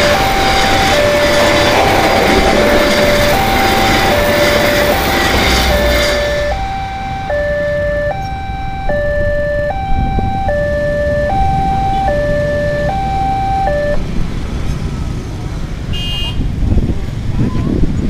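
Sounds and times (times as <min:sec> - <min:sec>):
two-tone crossing alarm: 0:00.0 - 0:14.1
motorcycle engines rumbling: 0:00.0 - 0:18.0.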